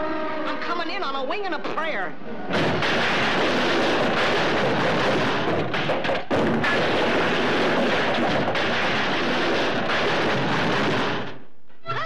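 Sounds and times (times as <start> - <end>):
wooden boards crashing and clattering: 2.5 - 11.4.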